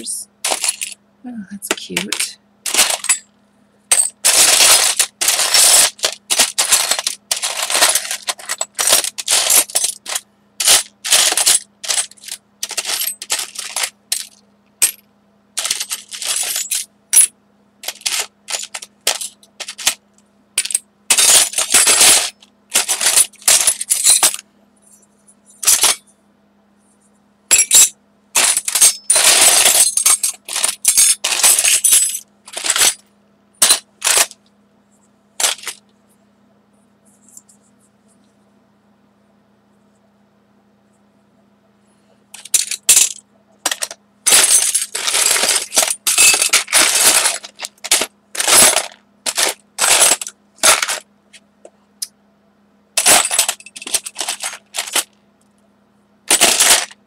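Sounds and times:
craft supplies rustling and clattering: 0.0 - 1.0, 1.7 - 3.3, 3.9 - 15.0, 15.6 - 20.0, 20.6 - 26.0, 27.5 - 33.0, 33.6 - 34.4, 35.4 - 35.8, 42.4 - 51.1, 53.0 - 55.2, 56.3 - 57.0
faint electrical hum: 0.0 - 57.0.

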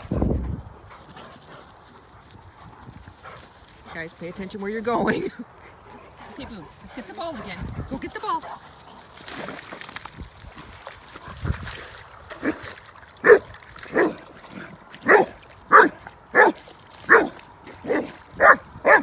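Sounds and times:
dog barking: 13.2 - 14.2, 15.0 - 19.0.

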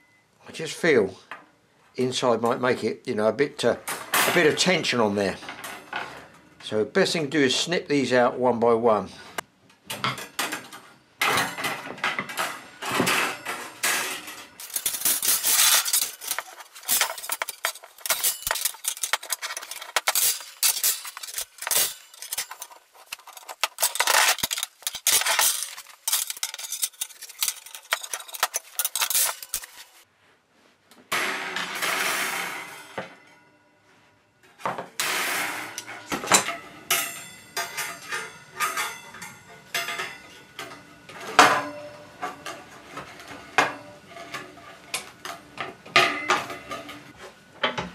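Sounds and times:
wire rack clattering on worktop: 9.9 - 30.0, 31.1 - 33.2, 34.6 - 47.8.

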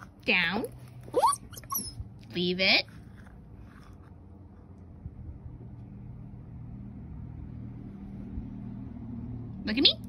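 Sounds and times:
vehicle engine humming: 0.0 - 10.0.

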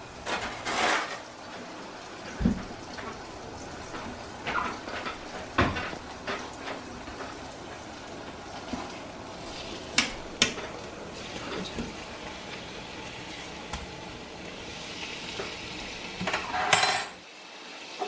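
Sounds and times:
chicken sizzling in pan: 0.0 - 18.0
noisy sizzle burst: 0.0 - 18.0
utensil clicking against pan: 9.9 - 10.9.

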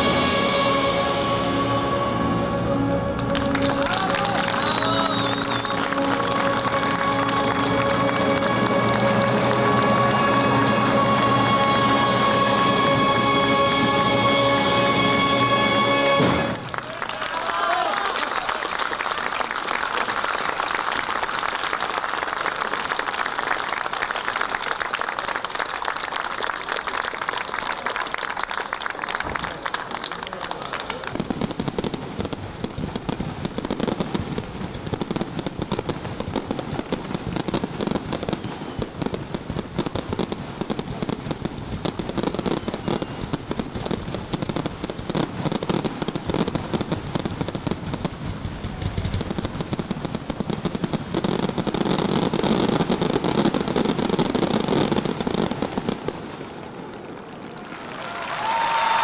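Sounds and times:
fireworks bangs and pops: 3.1 - 9.2, 28.2 - 57.9.

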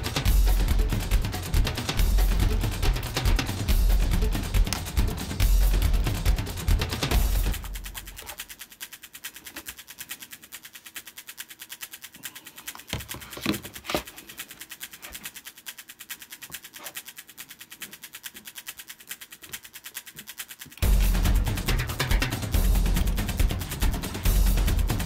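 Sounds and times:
background music: 0.0 - 8.2, 20.8 - 25.0
faint fast ticking: 0.0 - 25.0
plastic basket knocking and rattling: 12.9 - 14.1.

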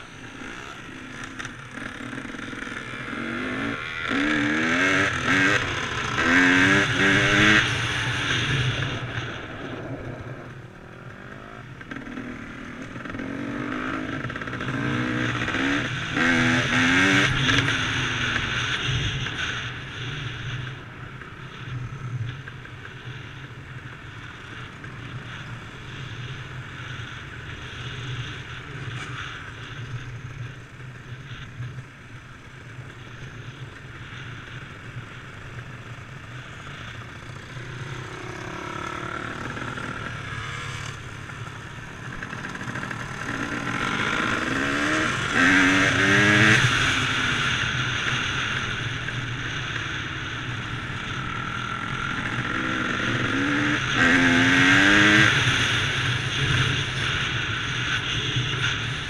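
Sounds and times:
dirt bike engine revving: 0.0 - 19.5, 35.9 - 48.9, 51.0 - 59.0.

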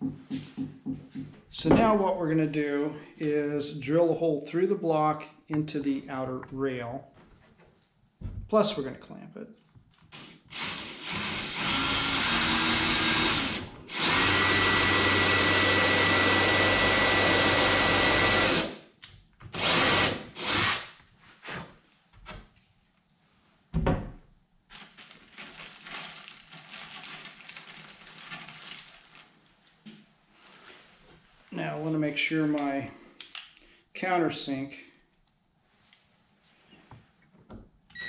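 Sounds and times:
cordless drill boring into wood: 10.1 - 18.8, 19.5 - 20.9.

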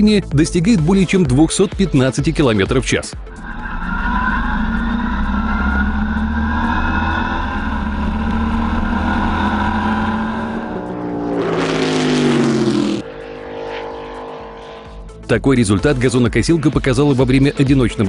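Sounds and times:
lawnmower engine running hard: 3.4 - 14.8.

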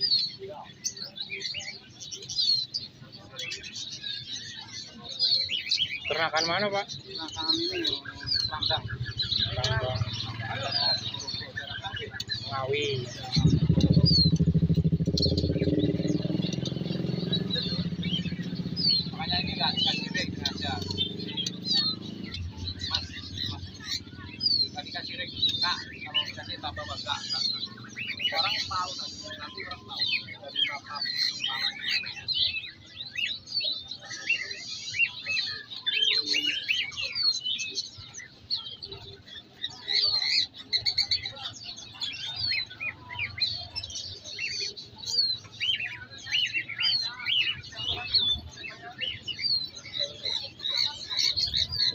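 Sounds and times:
high bird chirps: 0.0 - 51.9
motorcycle engine running: 8.3 - 26.1.

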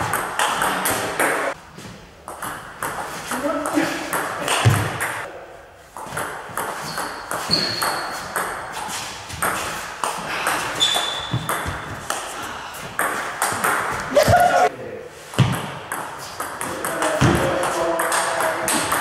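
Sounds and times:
high squeaks: 6.8 - 8.4, 10.8 - 11.6
ping pong ball clicking: 13.0 - 13.9.

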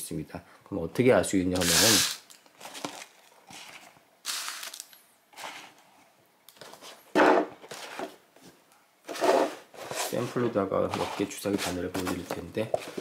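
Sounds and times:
cardboard boxes rustling and scraping: 6.6 - 13.0.

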